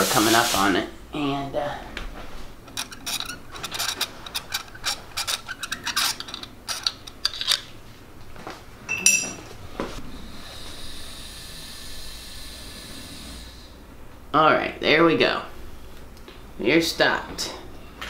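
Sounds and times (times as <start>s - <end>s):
metal tools clicking and rasping: 2.7s - 7.6s, 8.9s - 9.4s
sharp metal clink: 8.9s - 9.4s.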